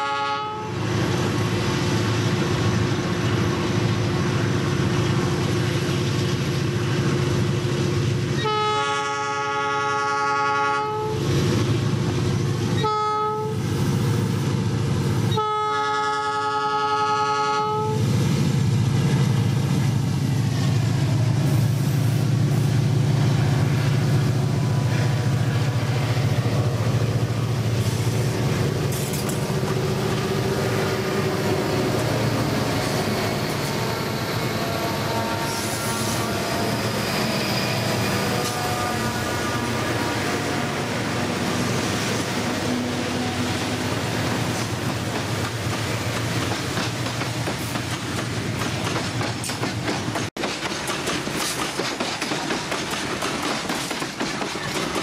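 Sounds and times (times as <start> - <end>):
locomotive air horn blasts: 0.0 - 0.8, 8.4 - 11.2, 12.8 - 13.6, 15.3 - 18.0, 32.9 - 41.1
diesel locomotive engines running: 0.0 - 55.0.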